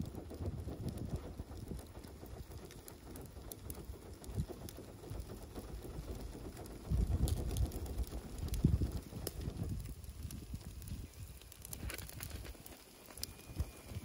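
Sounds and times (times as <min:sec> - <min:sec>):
fish sizzling on grill: 0:06.4 - 0:14.0.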